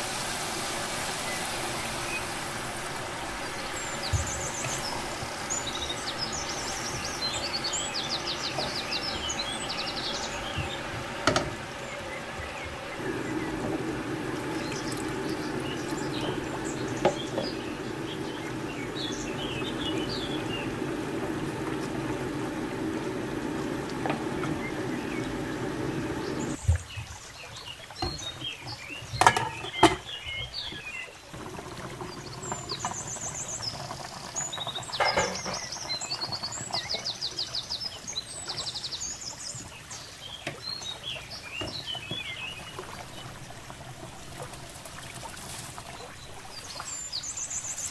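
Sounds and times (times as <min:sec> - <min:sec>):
liquid bubbling: 0:00.0 - 0:27.2, 0:27.8 - 0:47.9
water pouring into a pot: 0:00.0 - 0:47.9
birds chirping: 0:00.3 - 0:47.9
wooden spoon knocking on pot: 0:10.5 - 0:11.6.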